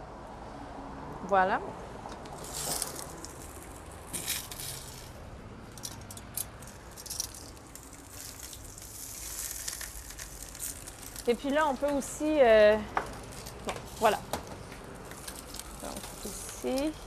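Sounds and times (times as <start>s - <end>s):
salt rattling in glass jar: 6.8s - 11.5s.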